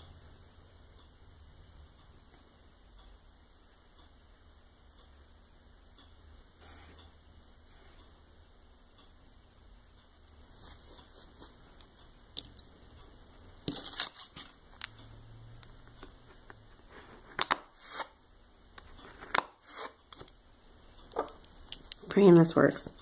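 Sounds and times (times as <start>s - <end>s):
nail-stamping tools scraping and clicking: 18.8s - 20.3s.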